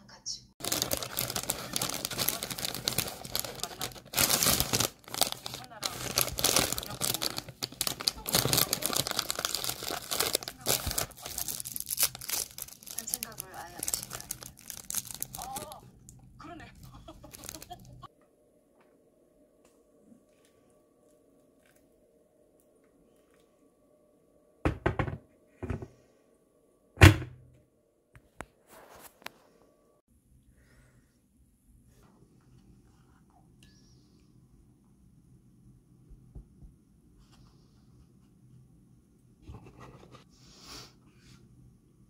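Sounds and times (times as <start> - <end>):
packaging crinkling: 0.6 - 16.2, 16.8 - 18.1
knocks and thumps: 24.7 - 26.0.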